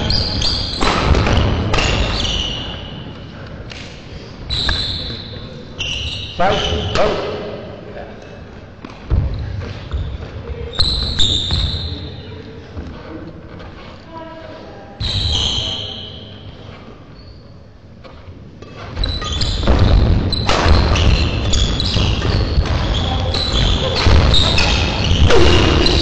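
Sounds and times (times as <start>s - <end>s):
shoes squeaking on floor: 0.0s - 3.3s, 4.4s - 7.3s, 9.4s - 12.6s, 15.0s - 26.0s.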